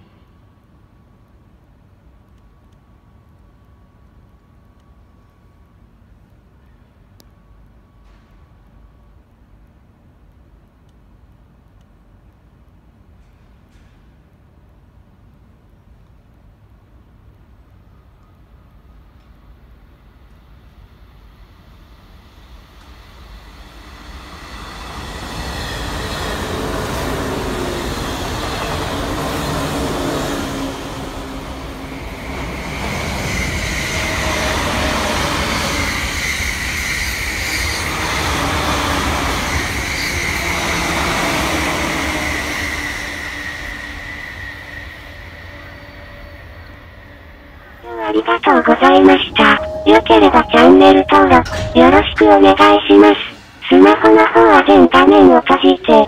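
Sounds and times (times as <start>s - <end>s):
electric trains rumbling past: 18.7s - 48.0s
high-pitched tone: 47.8s - 56.0s.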